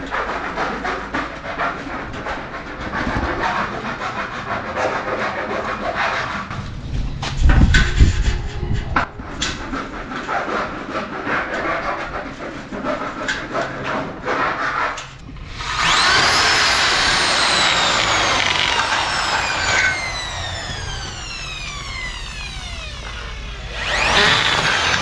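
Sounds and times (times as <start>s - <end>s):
electric drill whining: 15.3s - 25.0s.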